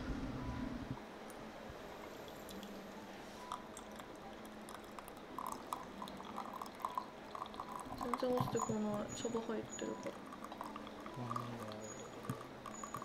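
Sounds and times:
tea pouring into glass: 3.4s - 13.0s.

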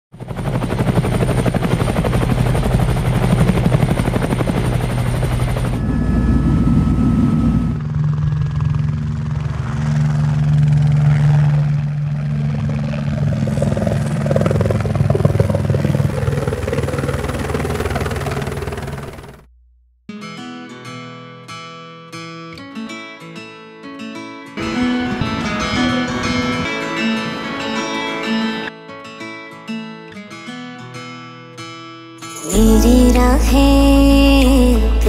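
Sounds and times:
helicopter rotor beat: 0.1s - 19.5s, 24.6s - 28.7s, 32.3s - 35.0s
helicopter engine drone: 0.2s - 19.5s, 24.6s - 28.7s.

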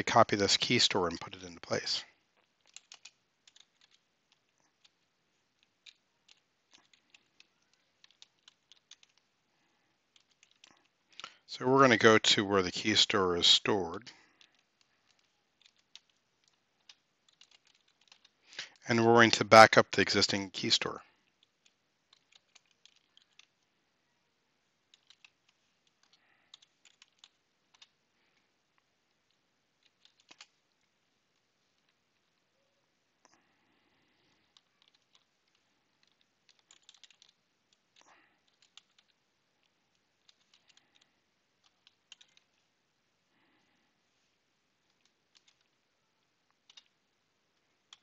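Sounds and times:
computer keyboard typing: 0.0s - 9.4s, 10.1s - 18.9s, 21.4s - 23.6s, 24.8s - 28.0s, 29.3s - 30.8s, 34.3s - 42.6s, 44.8s - 45.8s, 46.5s - 47.0s, 47.8s - 48.0s
keyboard keystrokes: 36.0s - 37.4s.

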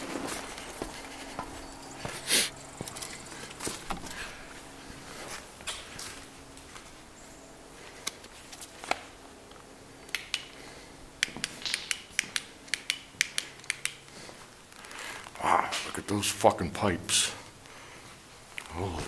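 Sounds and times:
footsteps crunching on grit: 0.0s - 7.1s.

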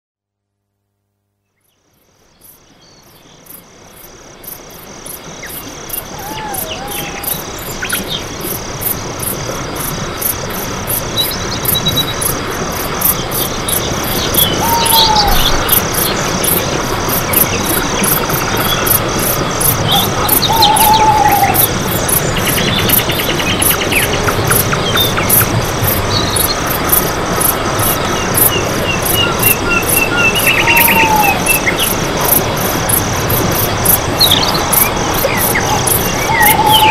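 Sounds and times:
insects chirping: 1.4s - 36.9s.

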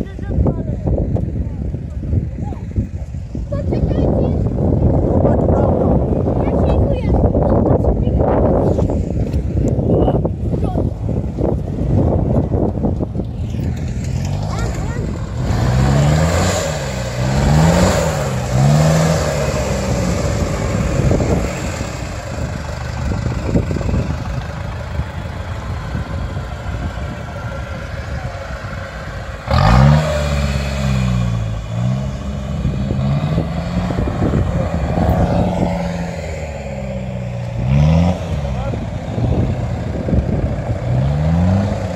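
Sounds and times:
truck engine revving: 11.4s - 41.9s.

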